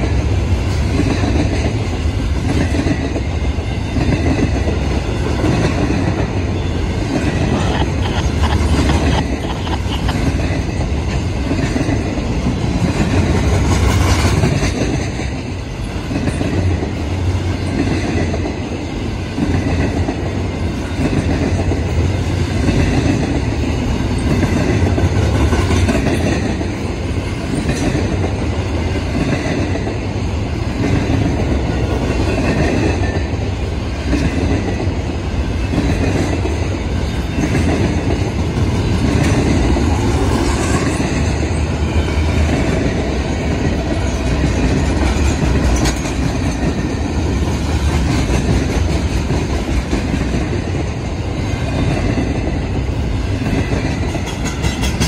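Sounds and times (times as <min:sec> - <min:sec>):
freight train rolling past: 0:00.0 - 0:55.0
wheels clacking over rail joints: 0:34.0 - 0:51.0, 0:53.4 - 0:55.0.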